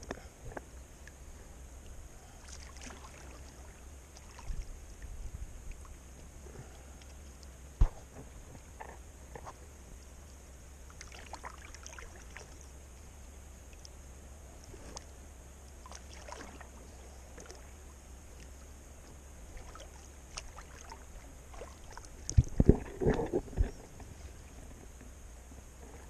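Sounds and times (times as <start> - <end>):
paddle strokes in water: 2.2 - 9.6, 10.9 - 12.8, 15.8 - 25.0
water drips and splashes: 2.4 - 5.1, 10.9 - 12.8, 15.7 - 17.8, 19.5 - 23.2.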